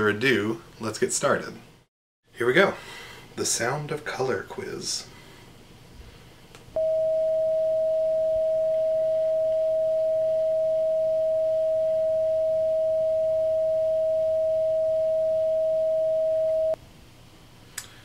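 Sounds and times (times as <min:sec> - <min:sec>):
steady sine tone: 0:06.8 - 0:16.8.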